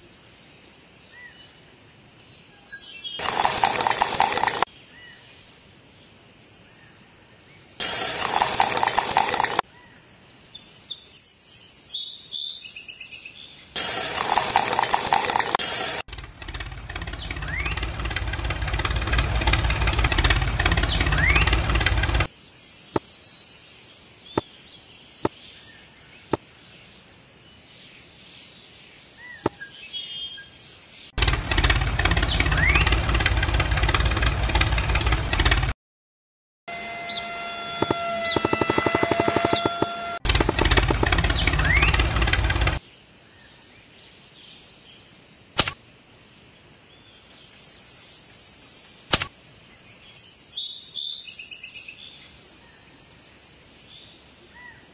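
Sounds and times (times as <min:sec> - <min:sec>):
sharp clicks: 0:03.2 - 0:04.7, 0:07.8 - 0:09.6, 0:13.8 - 0:22.3, 0:37.8 - 0:42.8, 0:49.1 - 0:49.3
tractor engine running: 0:03.2 - 0:04.7, 0:07.8 - 0:09.6, 0:13.8 - 0:22.3, 0:31.2 - 0:35.8, 0:36.7 - 0:42.8
loud noise bursts: 0:07.8 - 0:09.6, 0:13.8 - 0:22.3, 0:31.2 - 0:35.8, 0:36.7 - 0:42.8
birds chirping: 0:13.8 - 0:23.1, 0:31.2 - 0:35.7, 0:37.0 - 0:42.8.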